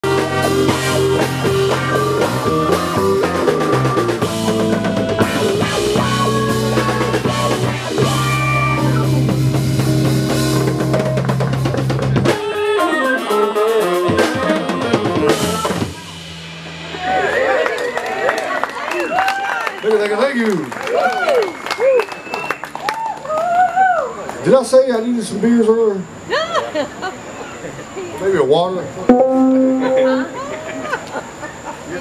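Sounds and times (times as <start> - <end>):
live band playing: 0.0 - 18.6, 29.1 - 30.6.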